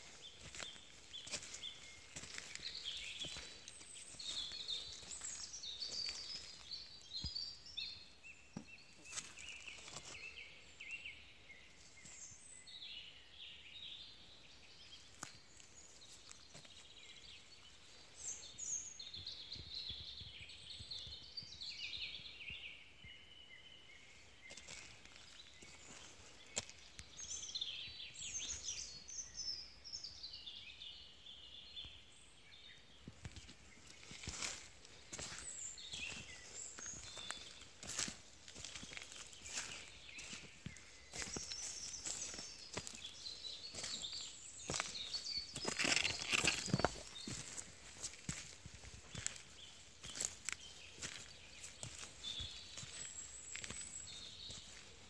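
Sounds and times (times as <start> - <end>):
footsteps on stony ground: 0.0 - 7.8, 8.5 - 10.4, 24.4 - 27.5, 33.0 - 55.0
songbirds chirping: 0.0 - 55.0.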